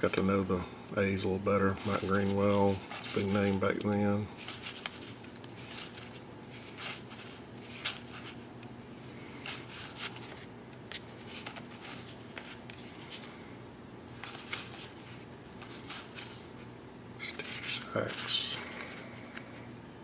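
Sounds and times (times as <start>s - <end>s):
faint steady hum: 0.0s - 20.0s
cards swishing and flicking: 4.4s - 8.6s.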